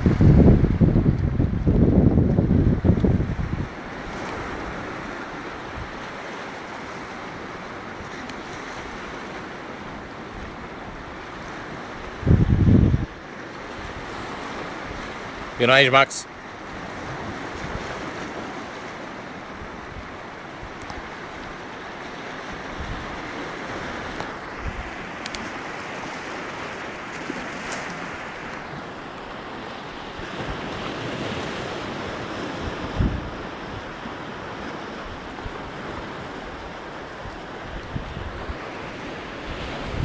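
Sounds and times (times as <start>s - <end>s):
wind buffeting microphone: 0.0s - 6.1s, 10.3s - 15.5s, 22.5s - 25.0s, 30.1s - 34.0s, 35.0s - 40.0s
surf washing on a beach: 0.0s - 40.0s.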